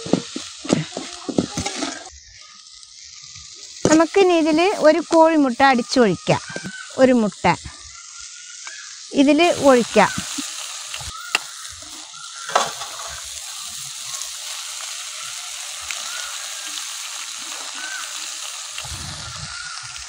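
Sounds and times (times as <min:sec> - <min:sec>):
frying in oil sizzling: 0:00.0 - 0:20.0
egg cracking: 0:06.2 - 0:07.0, 0:07.6 - 0:20.0.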